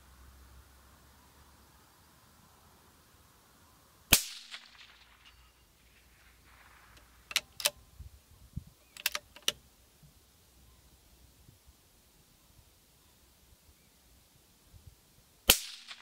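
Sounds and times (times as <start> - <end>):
rifle shot: 4.1 - 7.3, 15.5 - 16.0
rifle bolt clicking: 6.9 - 7.8, 9.0 - 9.6.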